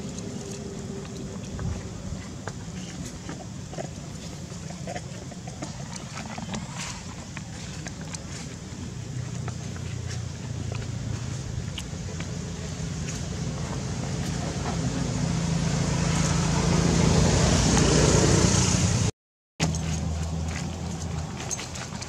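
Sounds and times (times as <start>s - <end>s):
motor engine humming: 0.0s - 22.0s.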